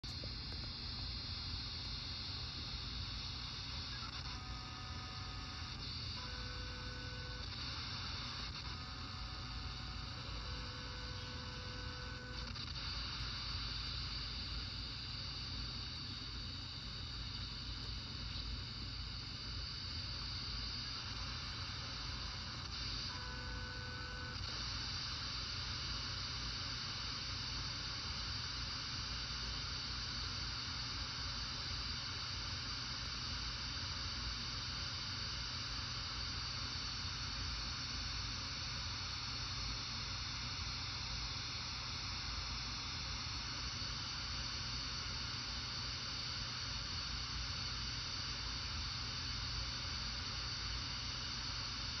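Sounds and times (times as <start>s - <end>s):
radio receiver hiss: 0.0s - 33.0s.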